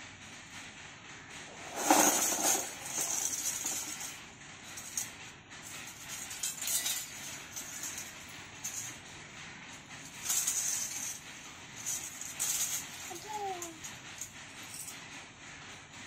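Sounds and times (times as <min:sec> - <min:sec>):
metal anklets jingling: 0:01.6 - 0:09.0, 0:10.0 - 0:14.9
toy pieces clattering: 0:01.7 - 0:04.1.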